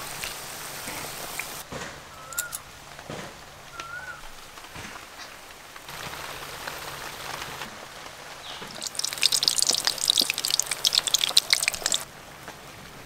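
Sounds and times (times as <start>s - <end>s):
food deep-frying in sizzling oil: 5.8s - 12.7s.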